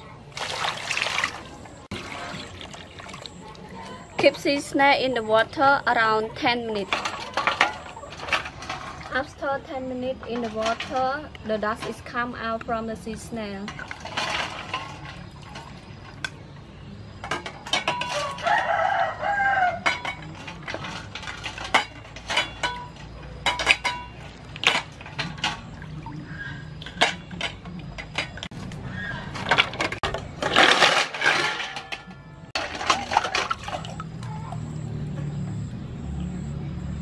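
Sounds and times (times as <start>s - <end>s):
water rushing: 0.3s - 3.6s
rooster crowing: 18.1s - 19.8s
shells clinking in metal bowl: 29.8s - 34.6s.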